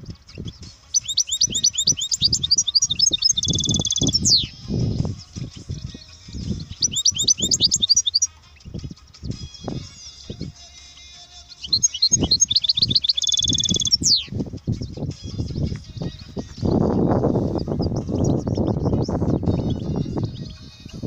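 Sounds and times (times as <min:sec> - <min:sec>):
finch twittering song: 0:00.0 - 0:21.0
low buffeting noise: 0:11.6 - 0:21.0.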